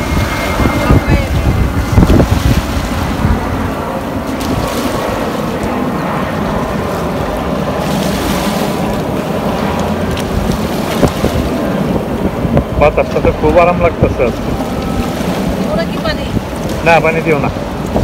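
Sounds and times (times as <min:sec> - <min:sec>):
wind buffeting microphone: 0:00.0 - 0:18.0
waves lapping against rocks: 0:06.5 - 0:18.0.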